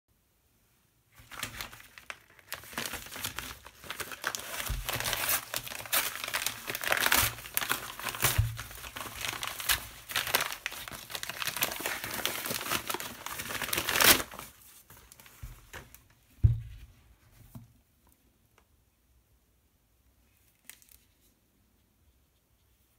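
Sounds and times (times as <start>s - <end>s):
quiet handling of paper: 0.6s - 19.0s, 19.9s - 22.9s
paper mailer tearing and crinkling: 1.2s - 14.6s
thump: 16.4s - 16.9s.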